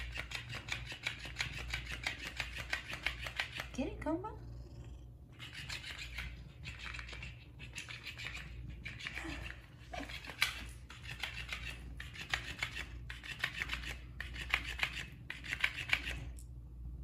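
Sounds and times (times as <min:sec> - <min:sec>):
toy fish tail flapping on floor: 0:00.0 - 0:03.7.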